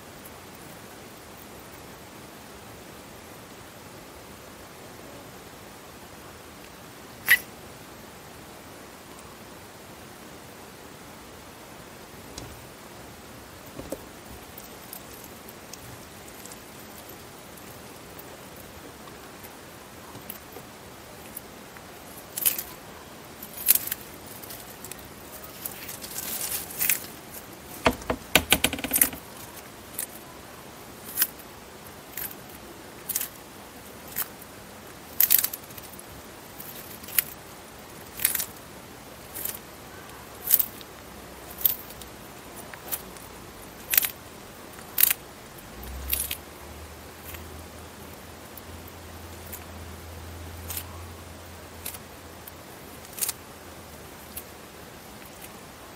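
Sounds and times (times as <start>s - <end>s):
tortoise crunching leafy greens: 13.6s - 27.9s, 31.0s - 55.6s.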